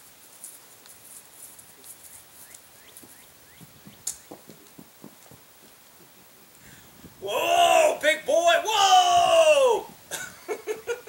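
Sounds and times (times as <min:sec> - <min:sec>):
hoof thuds on grass: 0:00.0 - 0:07.3
small birds chirping: 0:00.7 - 0:07.2.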